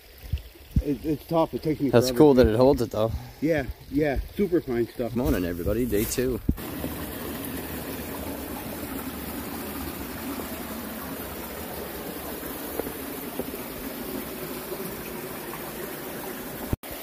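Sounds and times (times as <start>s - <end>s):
creek water trickling over stones: 0.0s - 17.0s.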